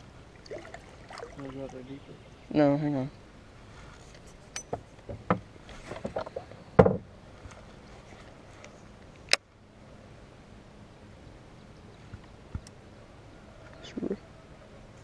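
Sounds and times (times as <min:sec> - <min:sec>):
thump in metal boat: 0:04.7 - 0:07.1.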